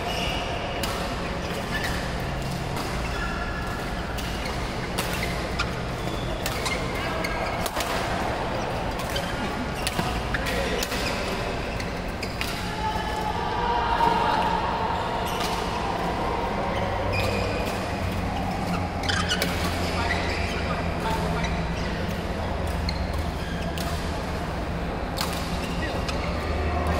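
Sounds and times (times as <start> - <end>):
sports hall din: 0.0 - 26.9
rackets striking shuttlecocks: 0.8 - 12.7.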